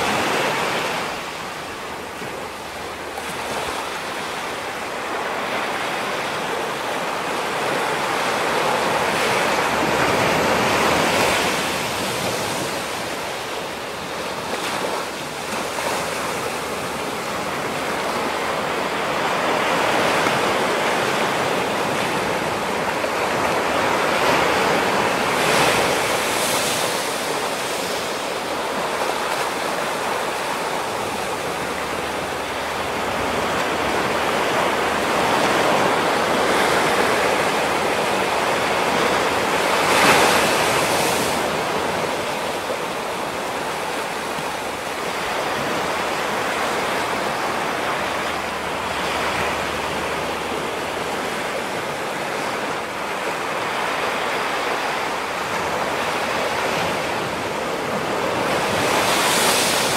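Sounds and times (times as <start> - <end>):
waves breaking on rocky shore: 0.0 - 59.9.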